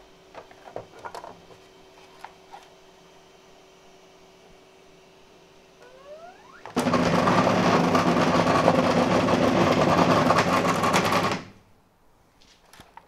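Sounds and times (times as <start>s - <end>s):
stepper motor whine and buzz: 5.8s - 8.2s.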